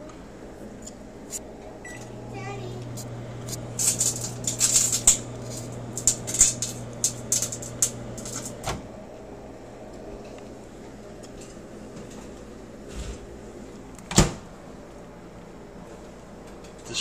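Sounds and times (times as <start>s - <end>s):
microwave oven hum: 0.0s - 17.0s
crackling electrical sparks: 2.9s - 8.6s.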